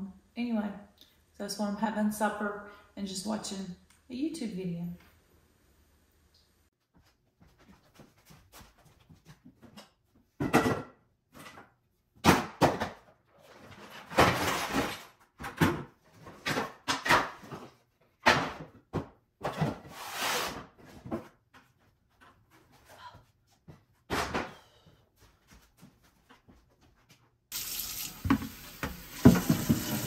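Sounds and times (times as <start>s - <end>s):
plastic bucket and wood knocking: 28.2s - 30.0s.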